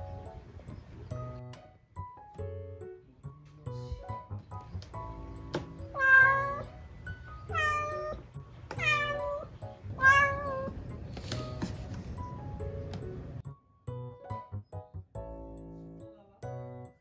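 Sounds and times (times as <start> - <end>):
cat meowing: 5.9 - 6.8, 7.4 - 10.8.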